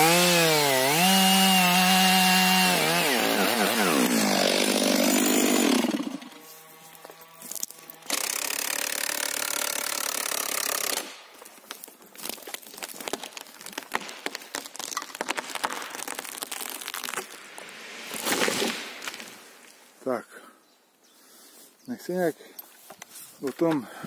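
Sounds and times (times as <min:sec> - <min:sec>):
wood cracking and snapping: 0:07.4 - 0:19.3.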